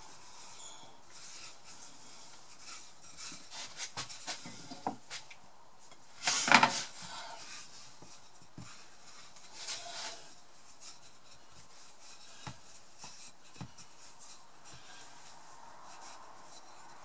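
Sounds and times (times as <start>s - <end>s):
rolling pin rolling pastry: 6.0s - 17.0s.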